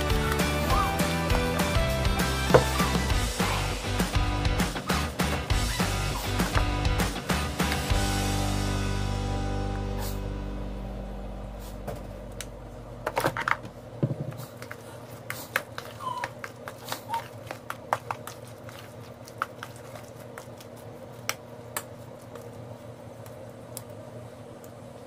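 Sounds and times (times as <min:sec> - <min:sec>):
low steady hum: 0:07.9 - 0:25.0.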